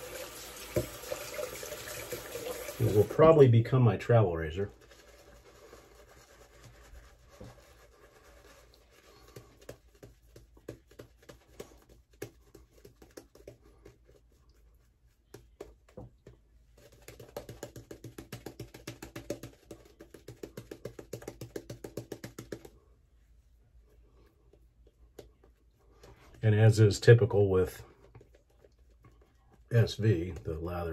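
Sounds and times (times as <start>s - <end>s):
shaving brush lathering soap: 0.0s - 13.4s.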